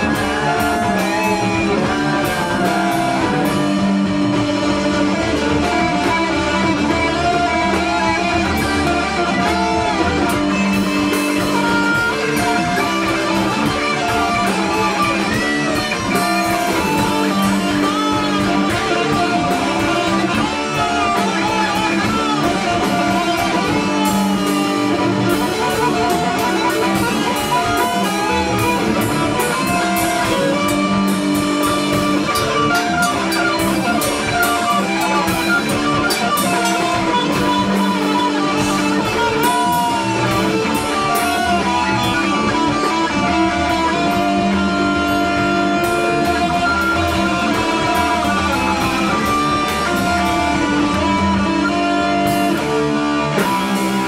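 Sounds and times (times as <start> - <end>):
guitar-led instrumental music: 0.0 - 54.0.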